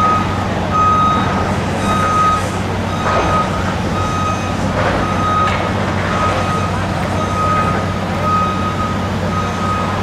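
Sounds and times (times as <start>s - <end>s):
diesel engine running: 0.0s - 10.0s
truck backup alarm beeping: 0.0s - 10.0s.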